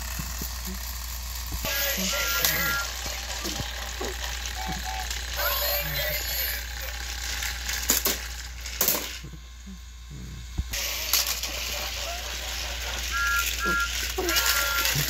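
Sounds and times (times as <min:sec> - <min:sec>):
toy trains whirring and rattling: 0:00.0 - 0:15.0.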